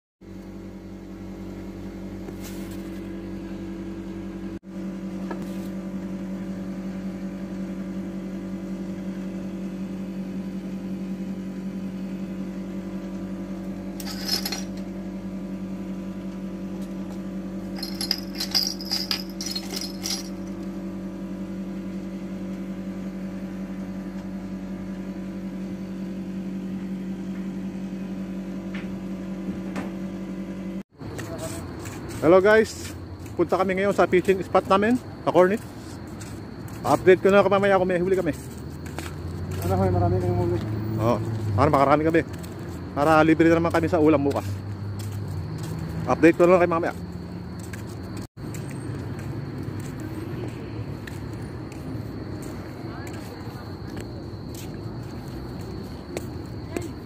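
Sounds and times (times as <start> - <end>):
metal fishing tackle jingling: 14.0 - 14.9, 17.7 - 20.6.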